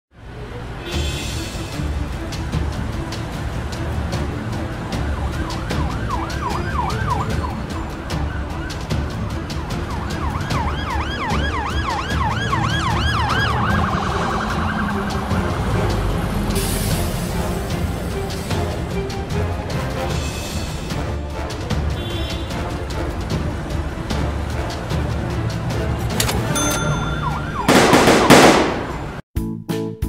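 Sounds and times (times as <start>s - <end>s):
music with ticking beat: 1.0s - 28.4s
siren yelping: 5.0s - 9.0s, 9.8s - 15.2s, 26.8s - 28.4s
burst of hiss: 16.6s - 17.6s.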